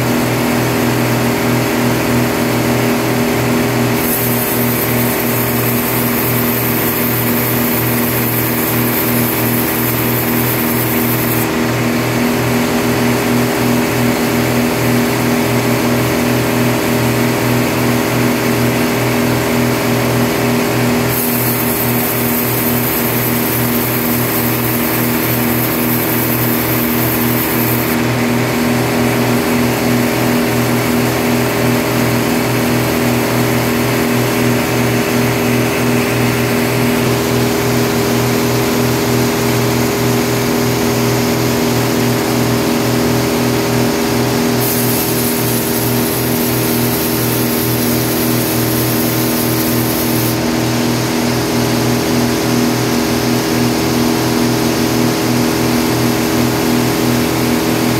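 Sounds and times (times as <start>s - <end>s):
band saw cutting wood: 3.9s - 11.5s, 21.0s - 28.1s, 44.3s - 50.8s
high hiss: 4.0s - 11.5s, 21.1s - 28.0s, 44.6s - 50.4s.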